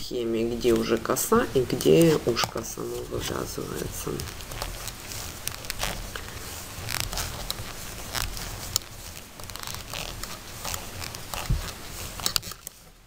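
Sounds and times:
yarn squeaking and rubbing: 0.2 - 13.0
knitting needles clicking: 0.4 - 12.8.

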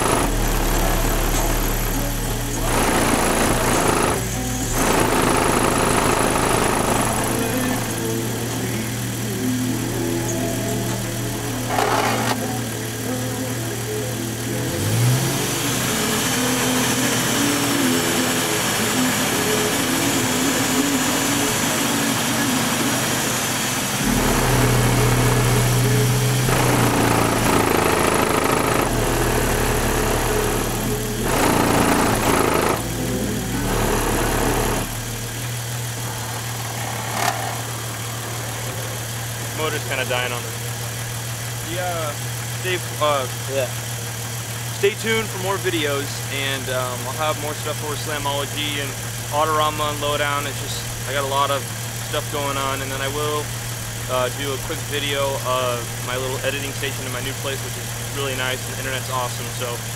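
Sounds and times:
bass-heavy song from subwoofer: 0.0 - 22.6, 24.0 - 36.7.

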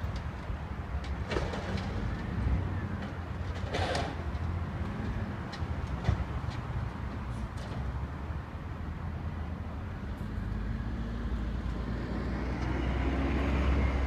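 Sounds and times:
distant garbage truck rumbling: 0.0 - 9.2.

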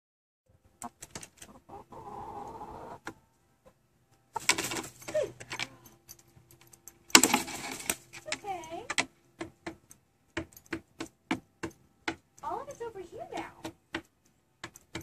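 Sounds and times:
hens clucking: 0.8 - 5.6.

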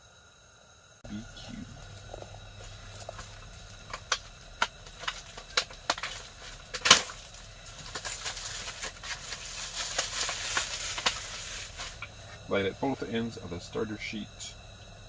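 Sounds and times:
plastic wrap crinkling and tearing: 1.8 - 12.1.

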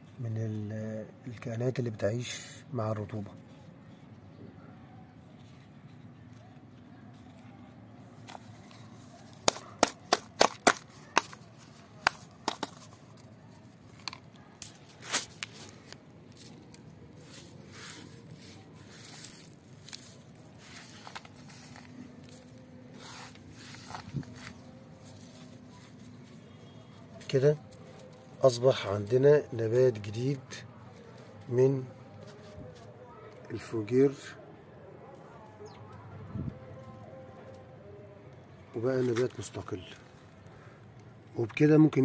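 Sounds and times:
soil scraping and rustling: 8.0 - 29.4.

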